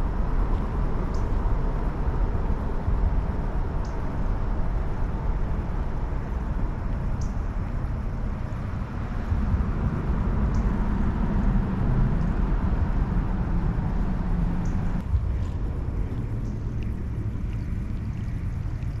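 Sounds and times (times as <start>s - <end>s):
wind buffeting microphone: 0.0s - 19.0s.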